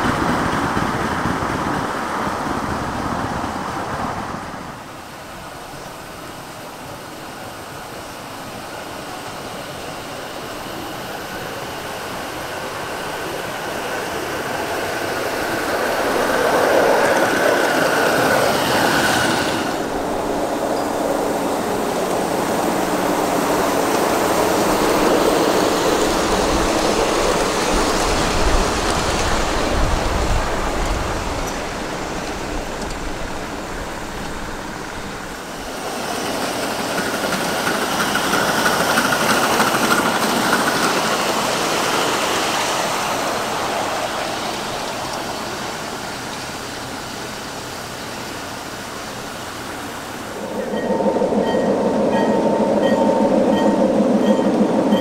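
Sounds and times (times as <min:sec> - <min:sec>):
deep train rumble: 0:00.0 - 0:55.0
miniature trains rolling on rails: 0:00.0 - 0:55.0
faint high whine: 0:48.0 - 0:55.0.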